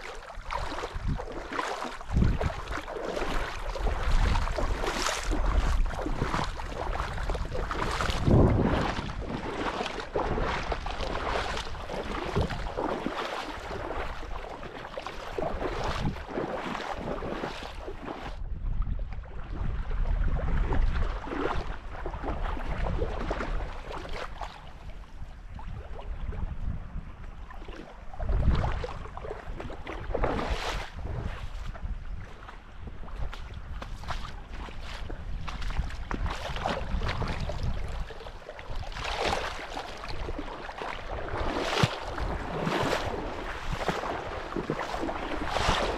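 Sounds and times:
rushing water: 0.0 - 18.4, 33.0 - 45.9
wind buffeting microphone: 0.0 - 45.9.

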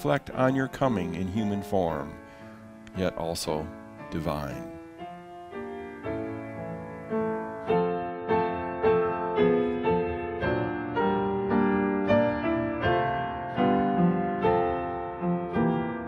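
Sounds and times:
slow piano music: 0.0 - 16.0.

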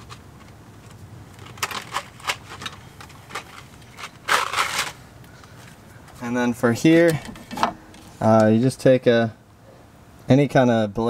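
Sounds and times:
scraping rustle: 0.0 - 8.4.

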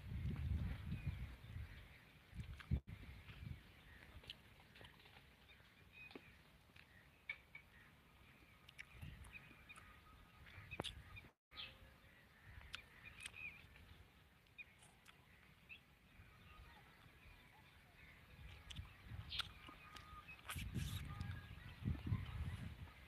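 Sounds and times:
bird chirps: 5.4 - 23.0.

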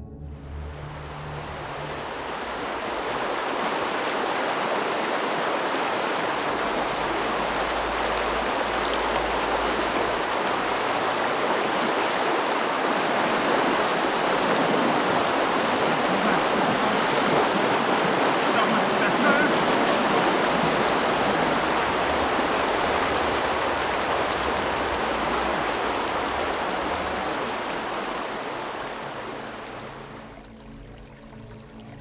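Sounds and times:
stream water rushing: 0.0 - 32.0.

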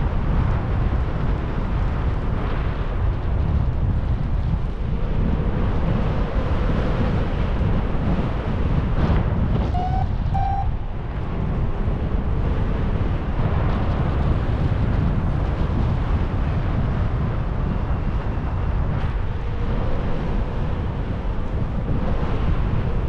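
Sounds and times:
wind buffeting microphone: 0.0 - 23.0
short electronic beep: 9.7 - 10.7.

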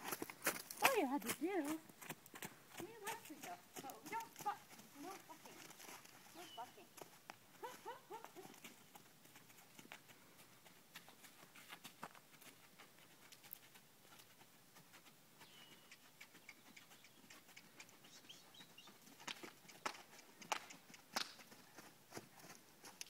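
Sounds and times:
horse hoofbeats on sandy dirt: 0.0 - 23.0
bird chirp: 6.3 - 6.8, 15.4 - 20.0.

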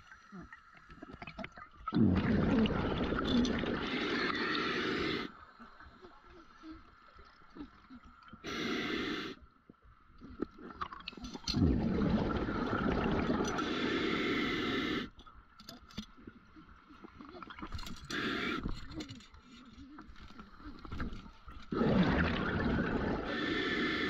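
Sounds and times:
exhaled bubbles rushing: 1.9 - 5.3, 10.8 - 14.3, 20.8 - 24.0
diver breathing through regulator: 3.6 - 5.4, 8.4 - 9.4, 12.2 - 15.2, 17.9 - 19.0, 21.7 - 24.0.

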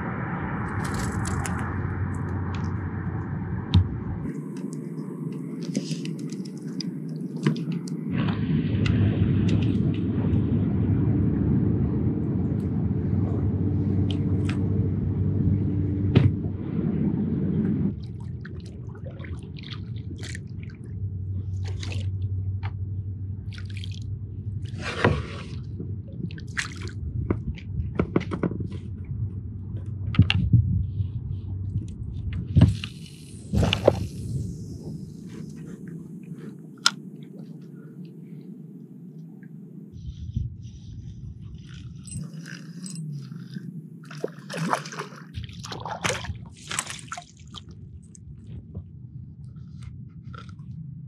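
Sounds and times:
low rumble: 0.0 - 51.0
water dripping and splashing off paddle: 0.7 - 2.8, 3.7 - 9.8, 17.9 - 20.9, 21.5 - 22.8, 23.5 - 28.9, 32.6 - 35.6, 42.1 - 48.3.

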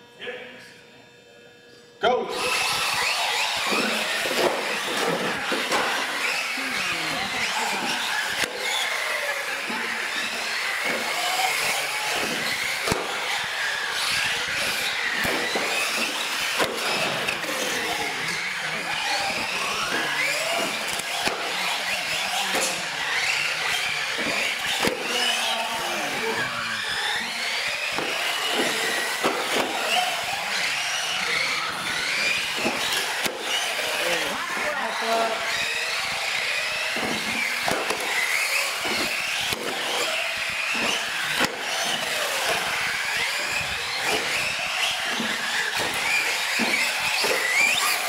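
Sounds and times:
electric motor whines: 1.0 - 48.0
toy trucks knocking: 36.4 - 48.0.

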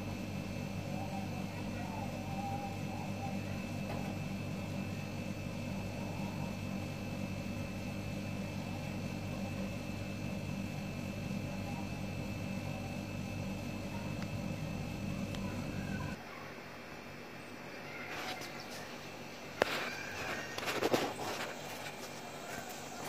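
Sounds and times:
low machine hum: 0.0 - 23.0
faint thin whine: 17.4 - 23.0.

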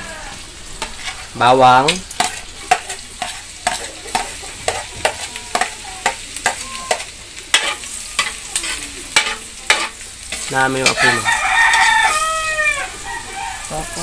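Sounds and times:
garlic sizzling in hot oil: 0.0 - 14.0.

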